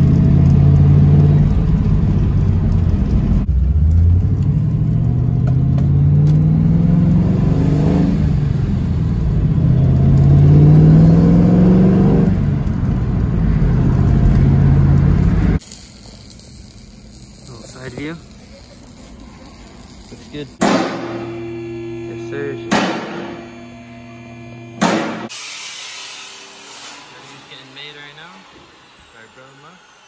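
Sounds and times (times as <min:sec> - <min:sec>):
car engine from inside cabin: 0:00.0 - 0:15.6.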